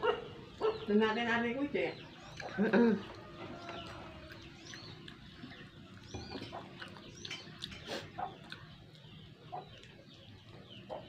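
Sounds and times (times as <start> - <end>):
chicken clucking: 2.0 - 11.0
soft clicks from eating: 6.5 - 10.1.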